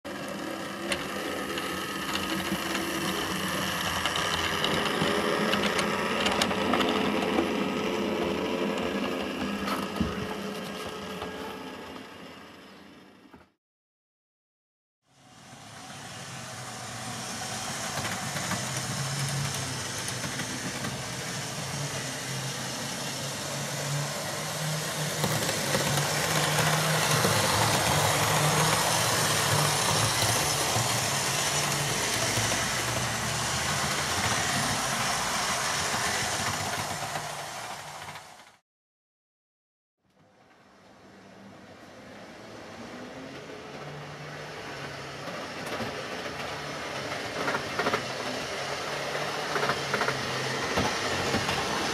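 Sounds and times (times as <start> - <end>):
model train motor hum: 0.1 - 13.1, 15.2 - 38.6
wheels rumbling on track: 15.2 - 38.6, 40.4 - 51.9.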